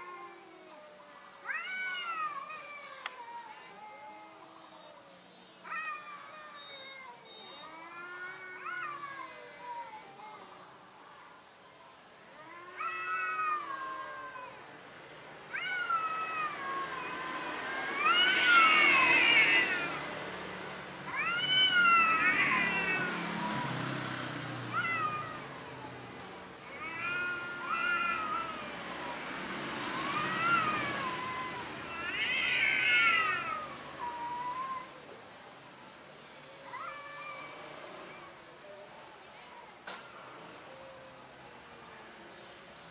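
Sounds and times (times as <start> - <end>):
cat yowling: 0.0 - 5.0, 5.6 - 10.3, 12.4 - 14.6, 15.5 - 20.1, 21.1 - 23.8, 24.7 - 29.3, 29.9 - 35.0, 36.4 - 38.8.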